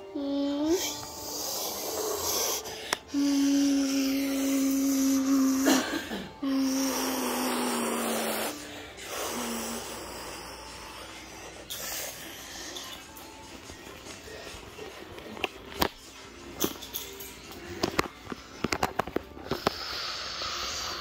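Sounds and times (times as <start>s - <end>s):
child humming jet-plane noise: 0.0s - 5.7s, 6.4s - 10.9s.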